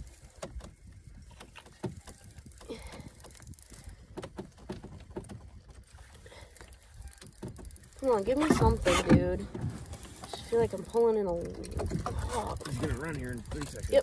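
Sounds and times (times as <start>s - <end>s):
fishing reel clicking: 6.0s - 9.1s, 9.8s - 14.0s.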